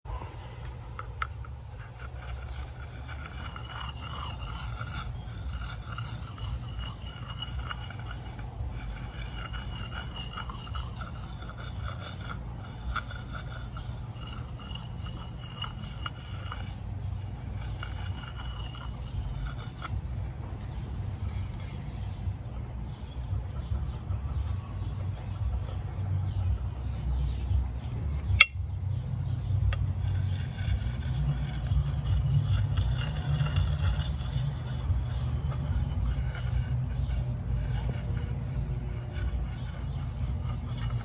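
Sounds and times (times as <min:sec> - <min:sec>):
steady low rumble: 0:00.1 - 0:41.0
knife shaving wood: 0:01.0 - 0:20.2, 0:29.7 - 0:41.0.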